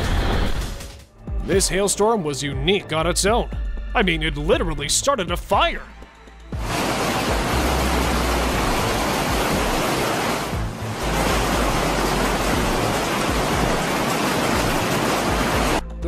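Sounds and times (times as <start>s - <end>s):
hailstones pelting pavement: 6.6s - 15.8s.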